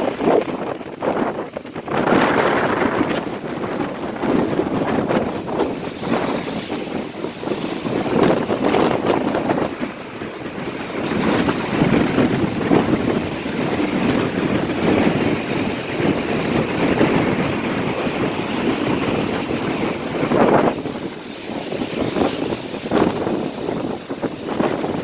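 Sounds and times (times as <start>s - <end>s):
waves breaking against pier pilings: 0.0s - 25.0s
wind gusting across microphone: 0.0s - 25.0s.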